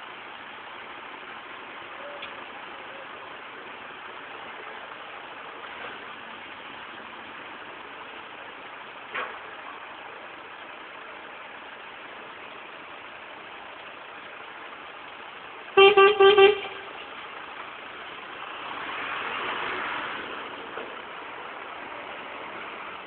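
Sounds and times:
vehicles running: 0:00.0 - 0:23.0
truck horn toots: 0:15.8 - 0:17.0.

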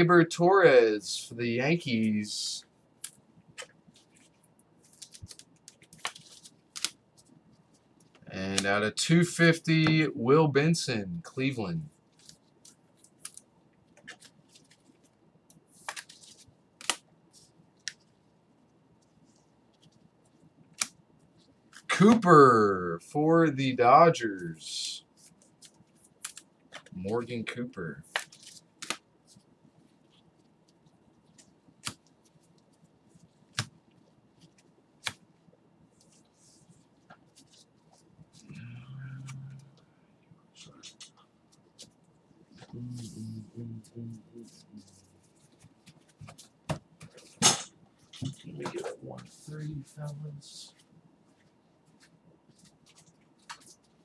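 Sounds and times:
cards being handled: 0:03.0 - 0:08.8, 0:12.1 - 0:18.2, 0:19.2 - 0:22.4, 0:25.1 - 0:27.4, 0:28.0 - 0:35.3, 0:35.9 - 0:38.6, 0:40.8 - 0:42.0, 0:44.4 - 0:49.5, 0:50.7 - 0:54.0
foil wrappers crinkling: 0:03.9 - 0:07.0
trading cards snapping: 0:04.8 - 0:07.0, 0:15.8 - 0:17.0, 0:20.7 - 0:21.0, 0:28.1 - 0:29.0.

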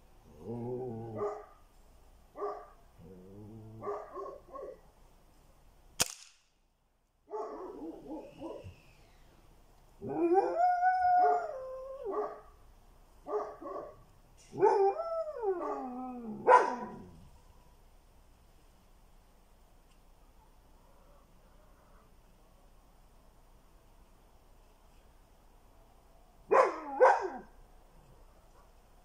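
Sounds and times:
dog barking and howling: 0:00.4 - 0:01.6, 0:02.4 - 0:04.8, 0:07.3 - 0:08.8, 0:10.0 - 0:12.6, 0:13.2 - 0:17.5, 0:26.5 - 0:27.6
air rifle shots: 0:06.0 - 0:06.6.

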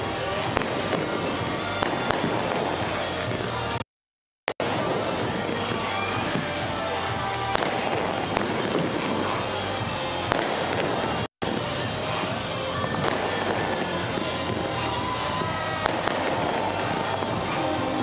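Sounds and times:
fireworks crackling and banging: 0:00.0 - 0:03.8, 0:04.5 - 0:18.0
music playing: 0:00.0 - 0:03.8, 0:04.6 - 0:18.0.

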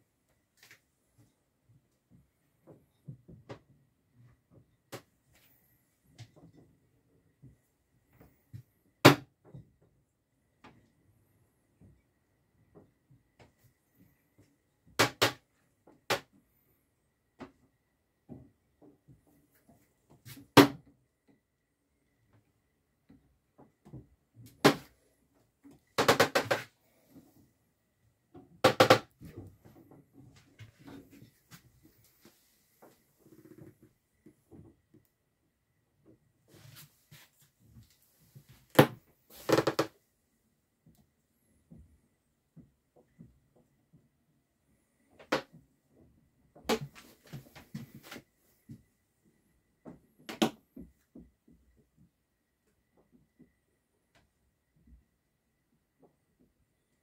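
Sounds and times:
knocks and thumps in wooden cabin: 0:00.6 - 0:16.6, 0:17.3 - 0:27.5, 0:28.1 - 0:35.1, 0:40.8 - 0:44.2, 0:44.8 - 0:49.0, 0:49.7 - 0:52.1.

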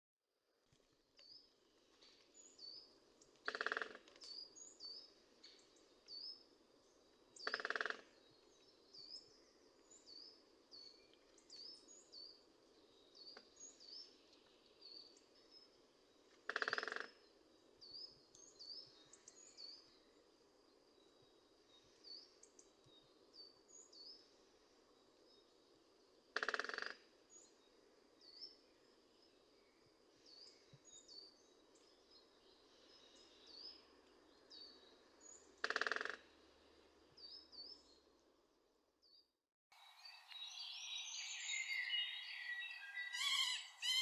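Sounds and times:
woodpecker drumming on wood: 0:03.4 - 0:04.2, 0:07.4 - 0:08.1, 0:16.4 - 0:17.2, 0:26.4 - 0:27.1, 0:35.6 - 0:36.4
small birds chirping: 0:39.0 - 0:44.0.

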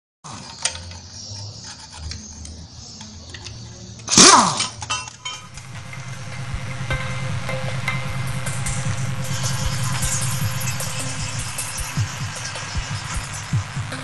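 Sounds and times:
low hum: 0:05.3 - 0:14.0.

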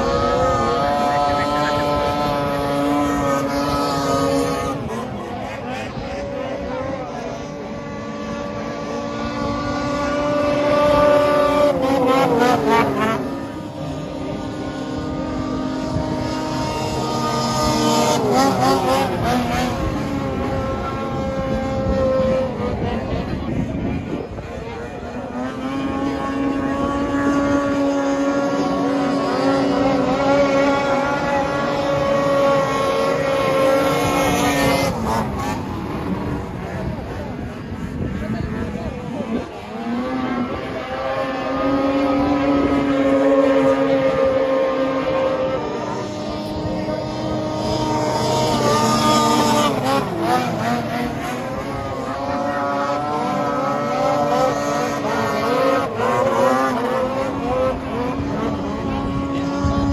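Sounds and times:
snowmobile engine passing by: 0:00.0 - 0:07.2, 0:08.2 - 0:59.9.

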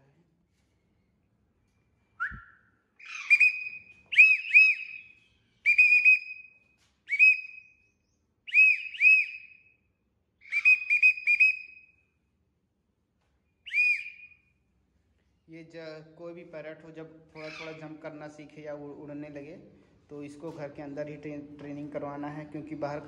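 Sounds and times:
person whistling short notes: 0:02.2 - 0:02.6, 0:13.7 - 0:14.3.

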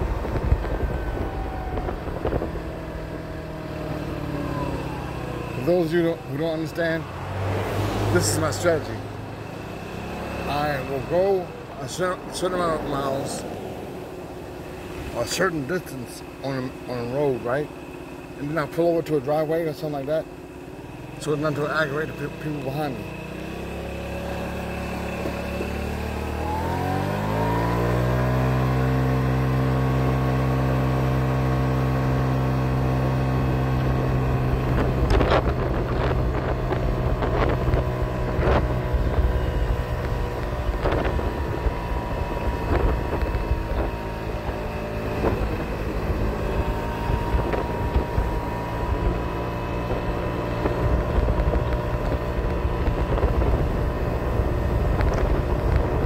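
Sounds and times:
wind buffeting microphone: 0:00.0 - 0:03.9, 0:34.0 - 0:56.0
moped engine accelerating: 0:00.0 - 0:56.0.

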